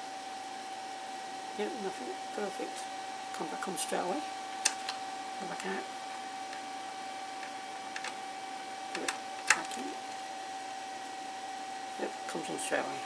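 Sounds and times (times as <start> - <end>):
faint steady whine: 0.0 - 13.0
clicks and knocks of handling cables: 7.4 - 8.2.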